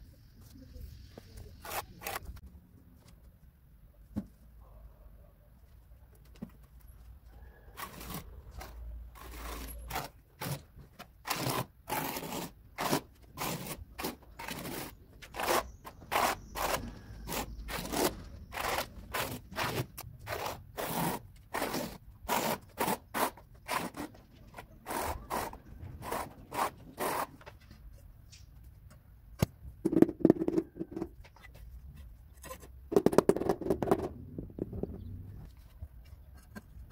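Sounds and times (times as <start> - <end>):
trowel scraping wet mortar: 7.8 - 27.5.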